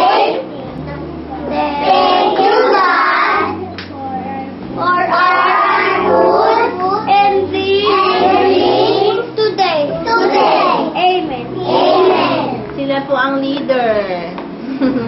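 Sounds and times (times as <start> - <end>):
children singing together: 0.0 - 0.5, 1.3 - 12.7
music playing: 0.1 - 15.0.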